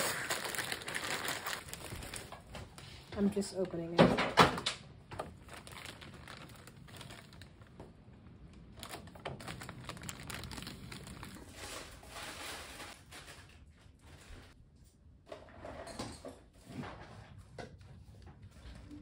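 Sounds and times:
plastic bag crinkling: 0.0 - 2.8, 5.2 - 13.7.

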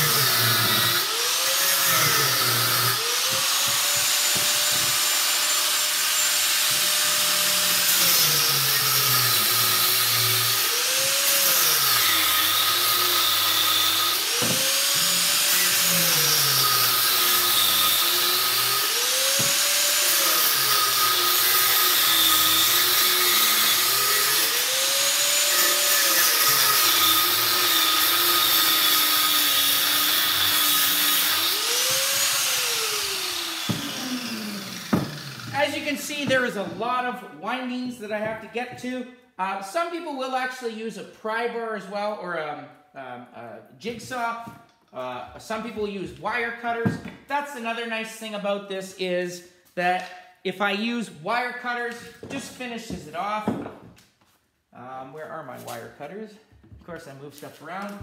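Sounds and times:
angle grinder grinding metal: 0.0 - 36.8.

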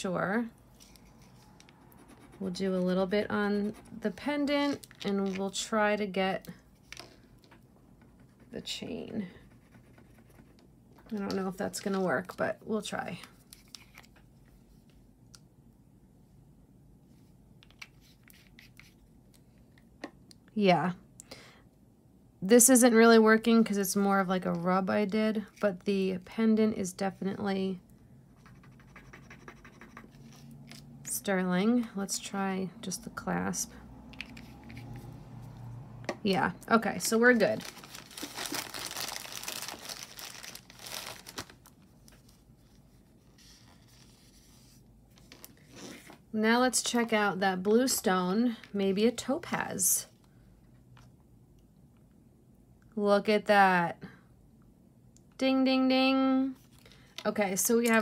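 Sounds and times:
packaging crinkling: 37.3 - 42.4.

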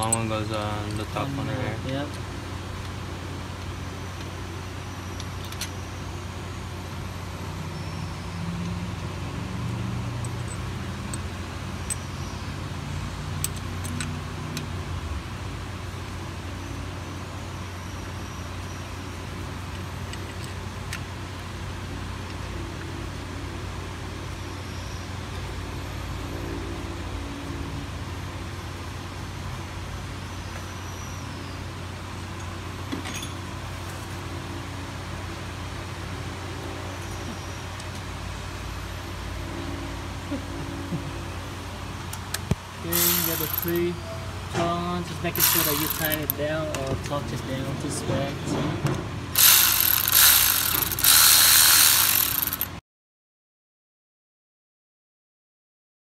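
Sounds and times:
light metallic clicks of bolts: 10.2 - 12.1, 13.4 - 14.7, 42.0 - 43.9, 45.4 - 47.2.

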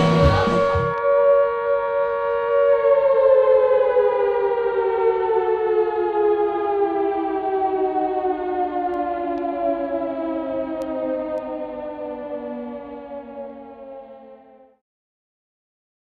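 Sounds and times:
air-raid siren winding down: 0.0 - 14.8.

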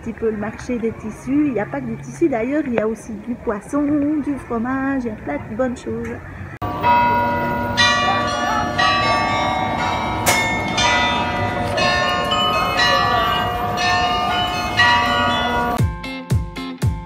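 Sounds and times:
carillon bells playing a tune: 6.6 - 15.8.

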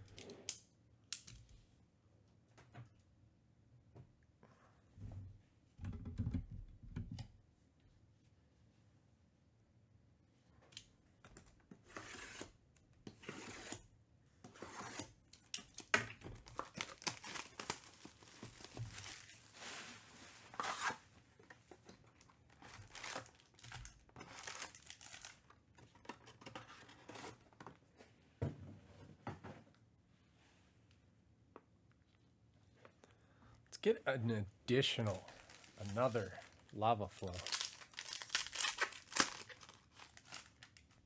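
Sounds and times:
shrink-wrap tearing: 15.7 - 19.6, 22.6 - 25.5, 35.0 - 40.9
foil packs crinkling: 16.4 - 20.0, 22.5 - 25.6, 34.8 - 41.0.

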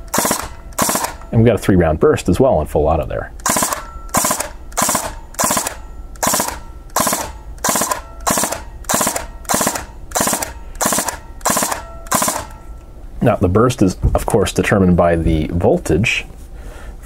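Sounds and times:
airsoft gun firing bursts: 0.0 - 1.3, 3.4 - 12.6.

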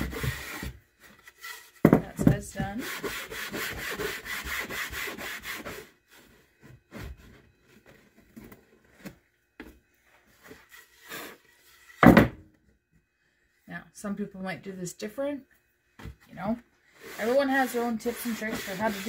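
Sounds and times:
sandpaper rubbing wood: 2.7 - 6.0, 17.0 - 19.0.

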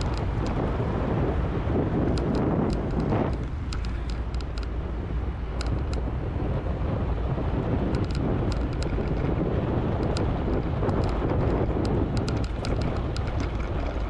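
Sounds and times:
light clicks: 0.0 - 0.6, 2.1 - 4.8, 5.6 - 6.0, 7.9 - 14.0
bicycle rumble: 0.0 - 14.0
wind buffeting microphone: 0.0 - 14.0.

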